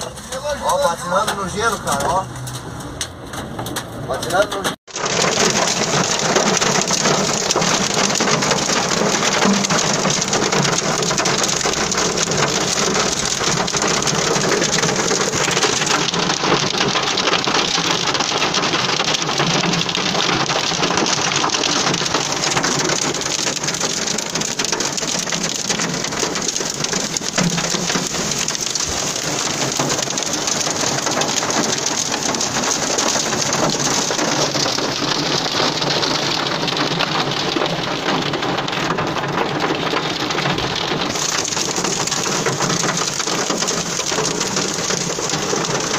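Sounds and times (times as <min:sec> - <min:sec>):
hail and rain on car roof: 0:00.0 - 0:45.9.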